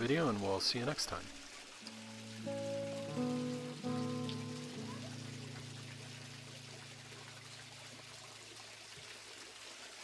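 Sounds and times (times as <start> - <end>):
stream trickling over rocks: 0.0 - 10.0
held guitar chord: 1.8 - 8.1.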